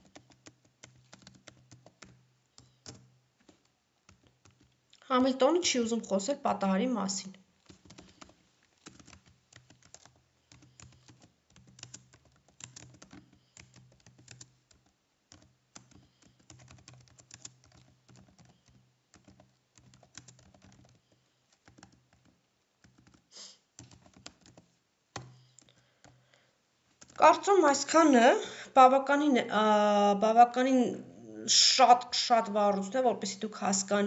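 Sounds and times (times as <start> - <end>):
keyboard typing: 0.0 - 5.0, 7.6 - 26.2, 27.0 - 27.4.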